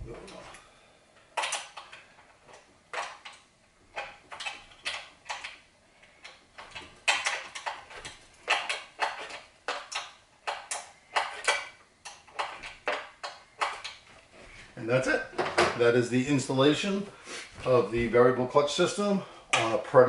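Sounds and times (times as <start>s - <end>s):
bolts clicking and clattering: 1.2s - 14.3s.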